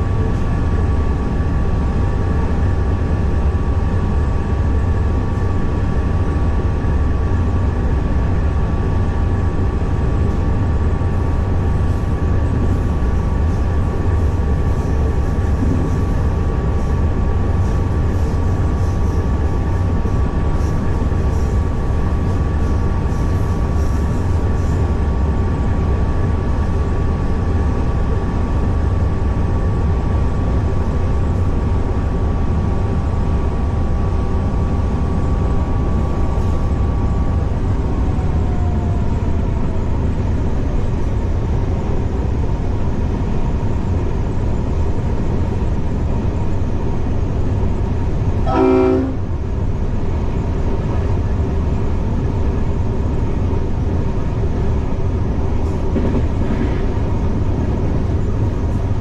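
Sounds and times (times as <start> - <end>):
diesel locomotive rumble: 0.0 - 59.0
steady whine: 0.0 - 59.0
locomotive horn toot: 48.4 - 49.3.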